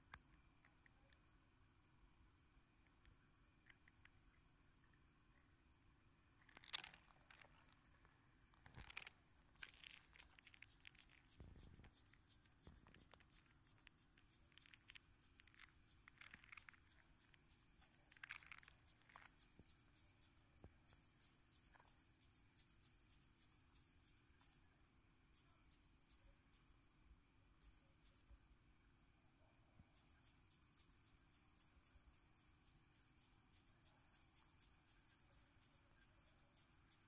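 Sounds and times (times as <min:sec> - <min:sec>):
fine rapid clicks: 0:08.6 - 0:24.6, 0:29.8 - 0:37.0
butterfly wings rasping hisses: 0:09.6 - 0:24.5.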